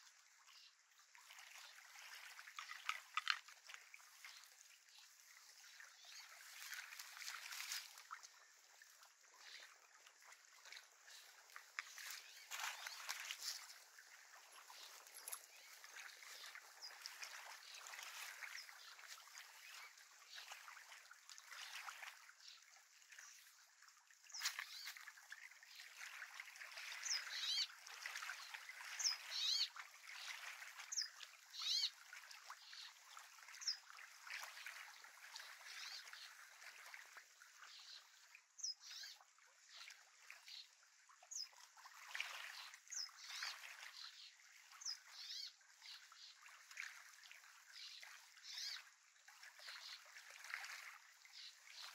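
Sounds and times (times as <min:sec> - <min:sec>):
small waves lapping on shore: 0:00.0 - 0:51.9.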